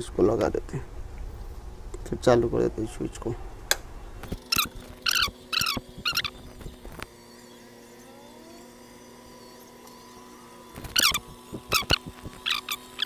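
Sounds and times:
sharp high chirps: 4.4 - 6.8.

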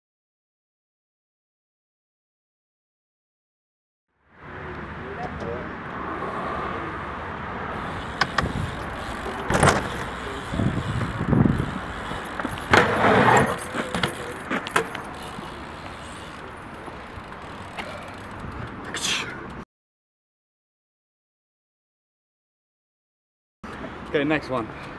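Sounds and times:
bike rolling over asphalt: 7.7 - 19.0
knocks and clatters from bike: 7.8 - 18.4.

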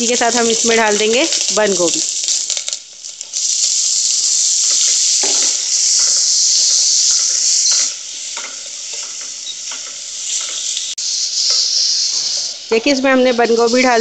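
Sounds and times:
cabbage sizzling in hot oil: 0.0 - 14.0.

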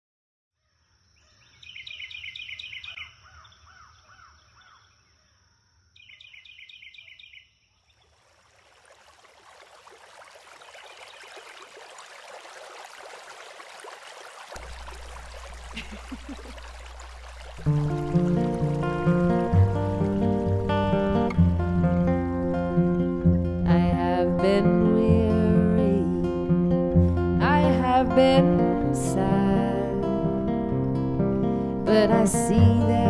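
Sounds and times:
birds chirping: 1.1 - 8.2
creek running: 7.8 - 25.9.

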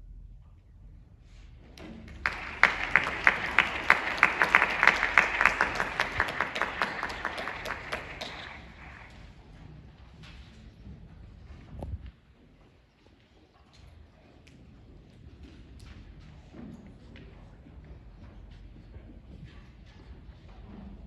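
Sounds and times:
small audience applauding: 1.7 - 9.6
loud close hand claps: 1.8 - 9.3.

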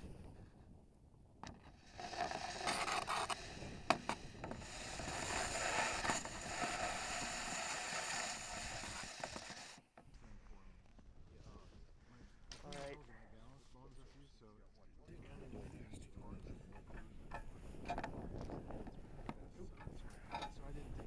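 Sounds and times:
hand scraping rustle on rocket: 1.6 - 9.9.

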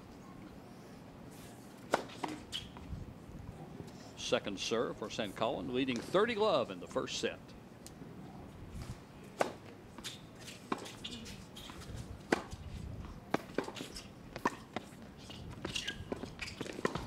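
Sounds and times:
tennis ball hit by racket: 1.9 - 2.7, 9.4 - 11.0, 12.3 - 12.6
tennis ball bouncing on court: 1.9 - 2.8, 9.4 - 11.0, 11.6 - 12.6, 13.3 - 15.0, 15.6 - 17.0.

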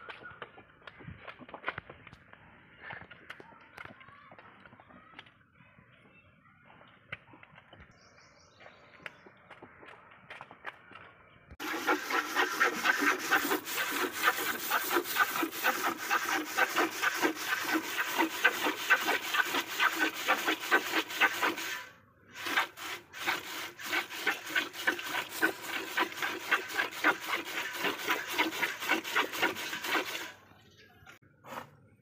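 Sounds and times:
milk squirting into pail: 11.6 - 30.4.

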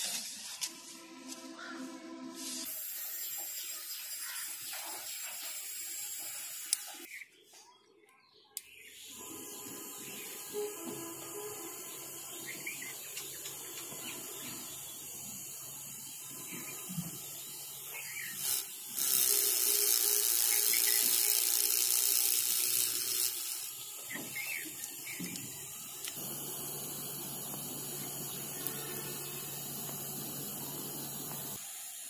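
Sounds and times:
electric motor humming: 9.0 - 32.0
whirring of grass shredding: 19.0 - 31.6.

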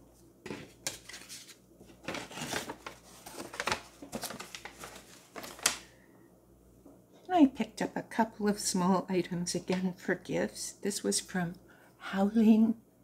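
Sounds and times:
rustling and crinkling packaging: 0.2 - 5.9.

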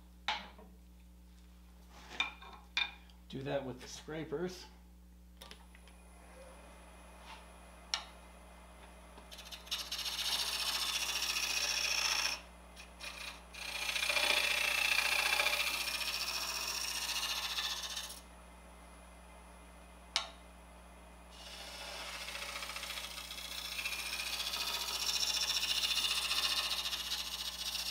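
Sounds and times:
scraper cutting spinning wood: 9.3 - 18.2, 21.4 - 27.9.

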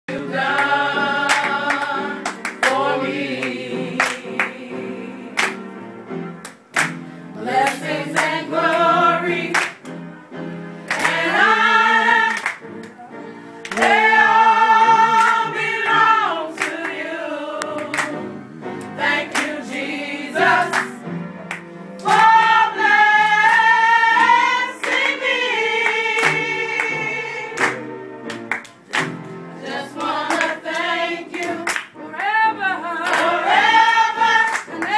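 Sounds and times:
women singing gospel: 0.1 - 5.7, 7.4 - 9.8, 10.9 - 12.7, 13.7 - 21.1, 22.0 - 27.9, 29.6 - 34.9
hand claps: 0.6 - 4.5, 5.4 - 5.6, 6.4 - 8.4, 9.5 - 10.0, 10.9 - 11.3, 12.3 - 13.0, 13.6 - 14.0, 15.1 - 15.5, 17.6 - 18.2, 18.8 - 19.6, 21.5 - 22.4, 24.8 - 25.2, 25.8 - 26.9, 27.6 - 29.3, 30.0 - 32.0, 33.0 - 33.4, 34.5 - 34.9.

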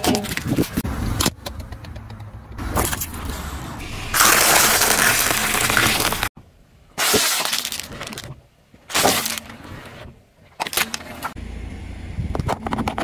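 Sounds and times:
eggshells cracking under tyre: 4.2 - 6.3.

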